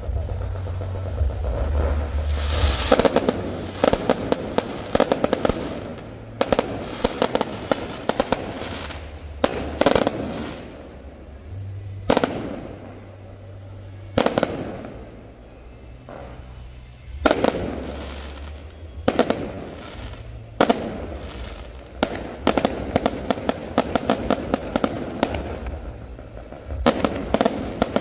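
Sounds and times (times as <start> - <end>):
fireworks crackling pops: 0.0 - 28.0
low rumble: 0.0 - 28.0.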